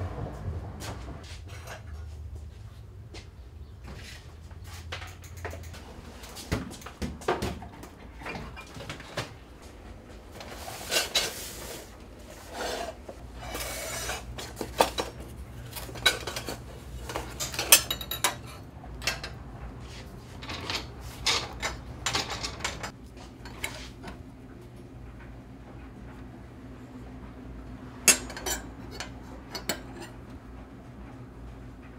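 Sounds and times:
metal tubes clinking on bench: 14.7s - 19.4s.

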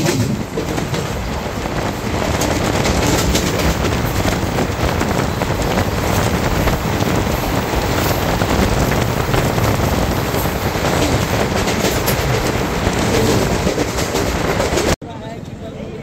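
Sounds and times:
train rumbling on track: 0.0s - 16.0s.

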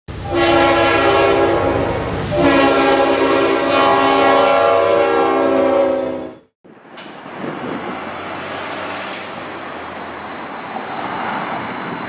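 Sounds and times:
locomotive air horn blasts: 0.1s - 6.5s
low rumble of train: 0.1s - 12.0s.

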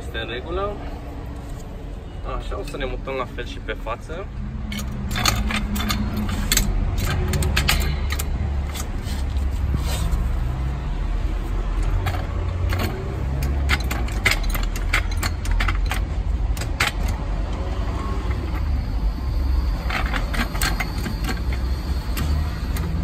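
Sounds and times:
jack metallic clinks and rattles: 4.6s - 10.5s, 11.7s - 23.0s.

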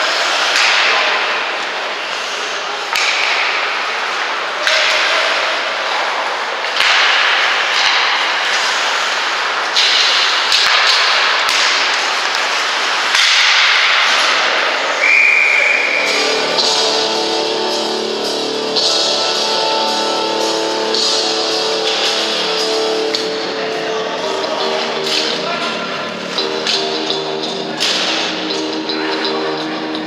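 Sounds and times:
sticks and puck clacking: 0.0s - 30.0s
skate blades scraping ice: 8.4s - 13.2s.

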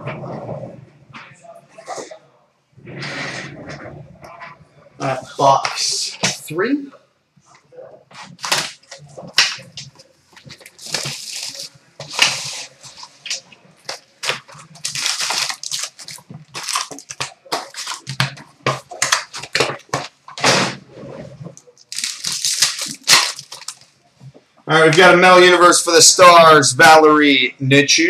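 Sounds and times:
foil packs crinkling: 8.2s - 20.2s, 21.7s - 24.0s
wrapper and cardboard tearing: 8.2s - 20.2s, 21.6s - 23.9s.

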